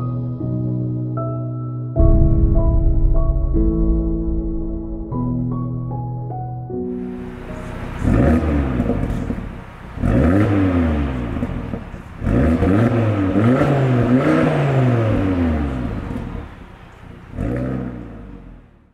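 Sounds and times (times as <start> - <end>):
car engine revving: 7.0 - 18.9.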